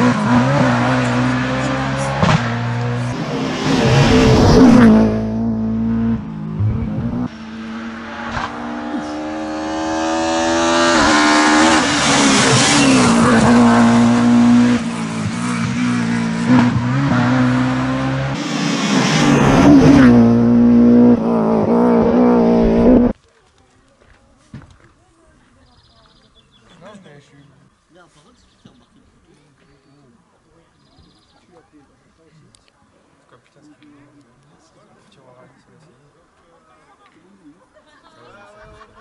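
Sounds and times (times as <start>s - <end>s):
rally car engines at full throttle: 0.0s - 23.2s.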